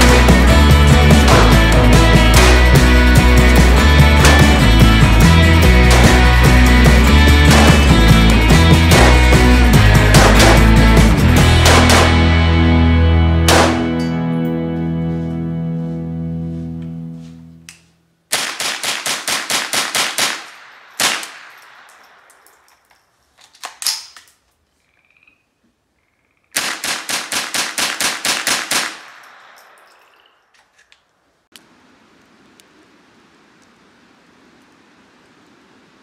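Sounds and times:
rifle gunfire: 0:07.4 - 0:08.2, 0:10.0 - 0:12.5, 0:13.4 - 0:14.1, 0:18.3 - 0:22.5, 0:26.6 - 0:29.9.

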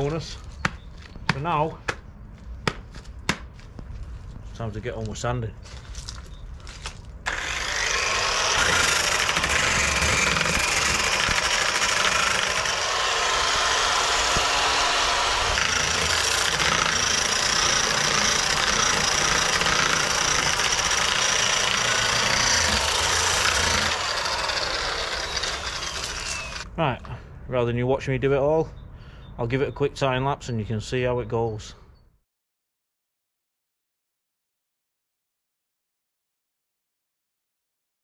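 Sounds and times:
disc sander whining and grinding: 0:07.3 - 0:26.7.

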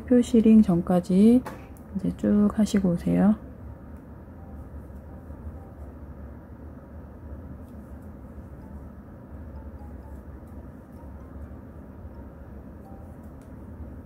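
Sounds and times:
low background rumble: 0:00.0 - 0:14.0.

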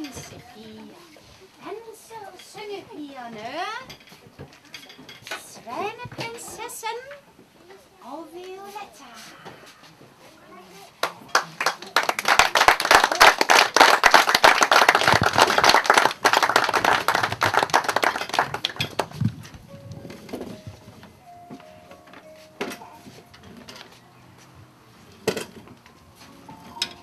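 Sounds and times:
audience clapping: 0:11.0 - 0:19.4
faint music with held notes: 0:18.3 - 0:27.0.

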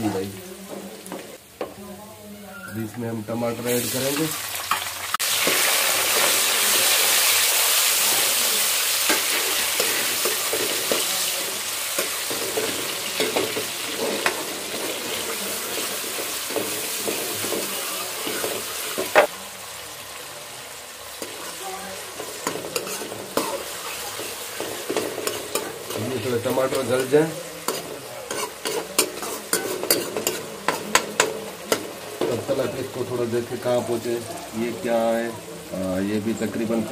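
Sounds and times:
tomatoes sizzling in hot oil: 0:00.0 - 0:36.9
metal ladle scraping a pan: 0:08.9 - 0:19.3, 0:21.1 - 0:32.4.

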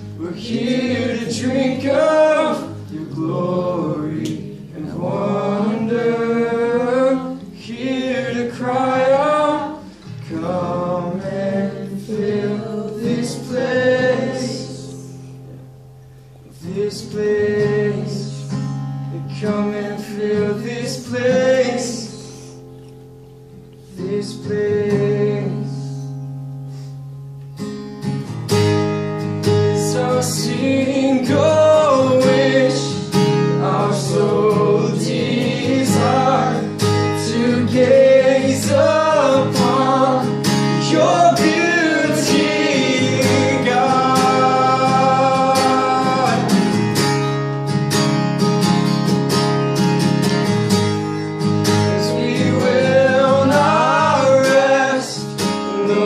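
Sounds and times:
acoustic guitar strumming: 0:00.0 - 0:56.0
man singing: 0:00.2 - 0:15.0, 0:16.5 - 0:18.6, 0:19.2 - 0:22.3, 0:23.9 - 0:26.0, 0:29.8 - 0:46.8, 0:52.0 - 0:56.0.

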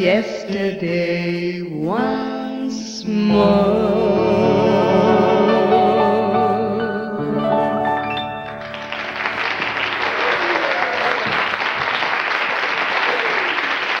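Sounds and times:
sustained song chord: 0:03.3 - 0:10.0
audience applauding: 0:08.1 - 0:14.0.

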